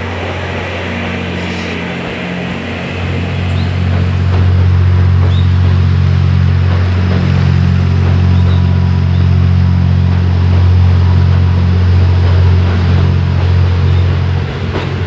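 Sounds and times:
diesel train engine droning: 0:00.0 - 0:15.0.

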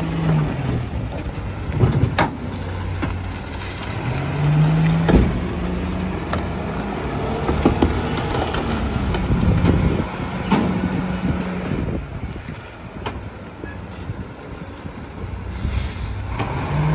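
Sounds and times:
truck body rattles and knocks: 0:00.0 - 0:13.4
garbage truck diesel engine: 0:00.0 - 0:16.9.

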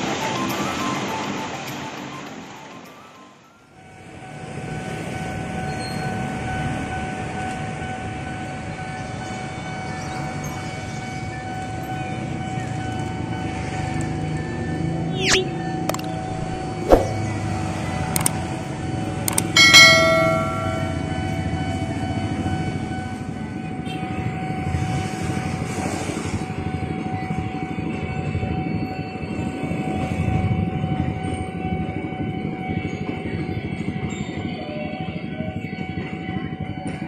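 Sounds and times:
electric train passing: 0:00.0 - 0:37.0
sharp clicks: 0:15.2 - 0:17.2, 0:18.1 - 0:18.4
level crossing alarm: 0:19.0 - 0:23.4
bell-like ding: 0:19.6 - 0:21.5.

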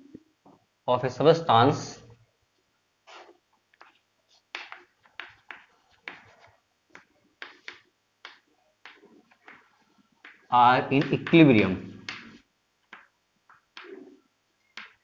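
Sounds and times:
chalk writing on chalkboard: 0:03.1 - 0:13.1, 0:13.7 - 0:14.2.

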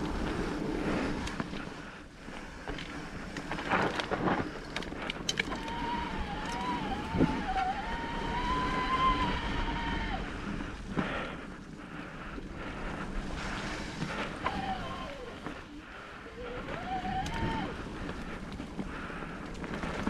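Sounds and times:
bike rattling over rough trail: 0:00.0 - 0:20.0
wind on microphone: 0:03.1 - 0:11.3, 0:12.4 - 0:20.0
electric bike motor whining: 0:04.0 - 0:11.8, 0:12.4 - 0:20.0.

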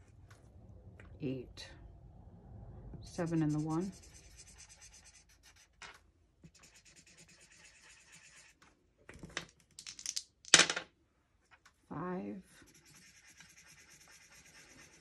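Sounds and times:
marker scratching on paper: 0:03.2 - 0:08.6, 0:12.6 - 0:15.0
dice shaken and rolled: 0:09.7 - 0:10.8.

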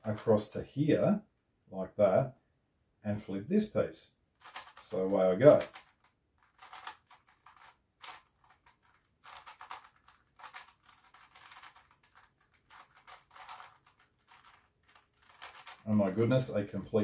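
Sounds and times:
puzzle cube clicking and scraping: 0:04.4 - 0:17.0.

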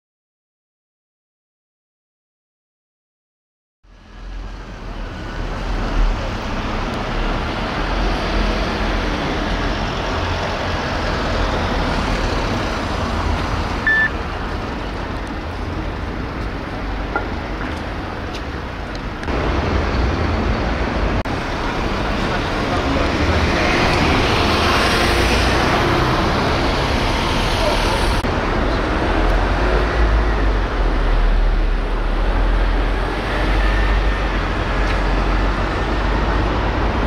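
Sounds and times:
passing vehicles rushing: 0:03.9 - 0:37.0
brief high beep: 0:13.9 - 0:14.1.

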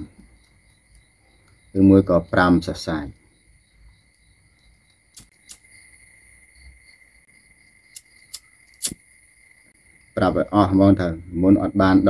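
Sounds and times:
lighter clicking: 0:05.1 - 0:05.7, 0:07.9 - 0:09.0.

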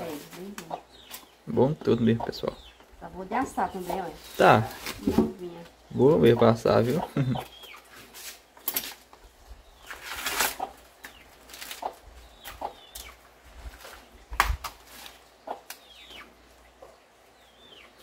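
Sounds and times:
corn husks ripping and crackling: 0:09.8 - 0:15.8
sharp snap: 0:14.3 - 0:14.8.

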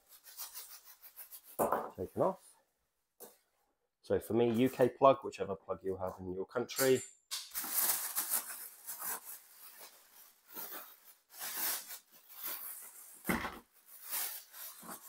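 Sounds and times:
plastic bag crinkling: 0:07.5 - 0:15.0.

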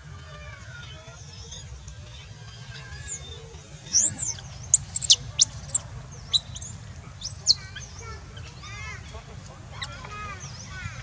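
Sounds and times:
baby monkey squealing: 0:03.9 - 0:08.0.

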